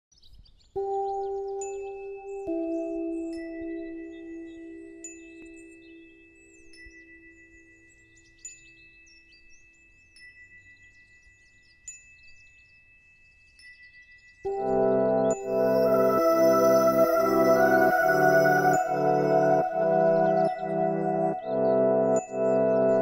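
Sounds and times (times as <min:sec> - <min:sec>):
held ambient chord: 0:00.8 - 0:06.5, 0:14.5 - 0:23.0
twinkling chime-like notes: 0:00.8 - 0:23.0
steady high tone: 0:14.5 - 0:23.0.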